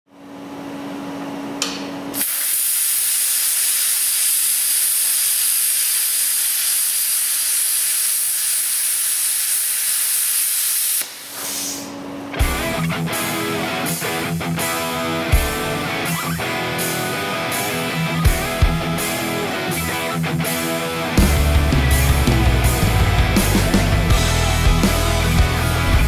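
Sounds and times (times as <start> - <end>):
arc welding hiss: 2.2 - 11.9.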